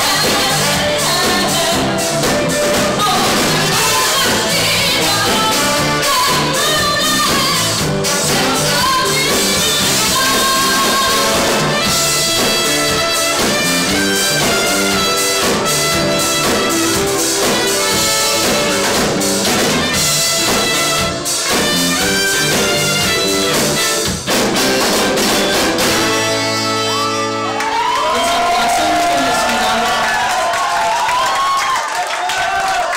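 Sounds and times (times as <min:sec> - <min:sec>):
woman singing: 0:00.0 - 0:12.0
soul band playing: 0:00.0 - 0:30.2
horn section: 0:00.0 - 0:30.5.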